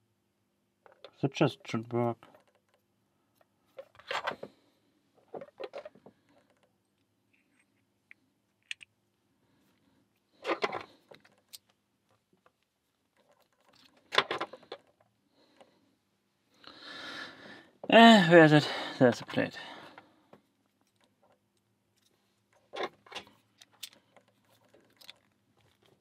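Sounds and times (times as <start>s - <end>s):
metal lock parts clicking: 20.7s - 26.0s.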